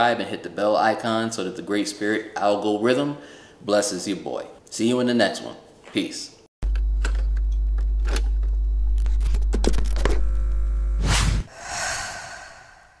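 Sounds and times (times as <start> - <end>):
whoosh: 11.0 - 13.0.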